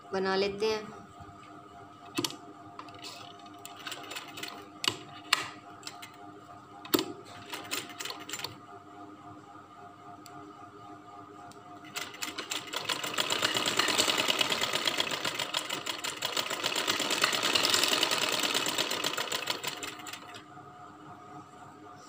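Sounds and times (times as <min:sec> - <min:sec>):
sewing machine stitching: 0:11.8 - 0:20.4.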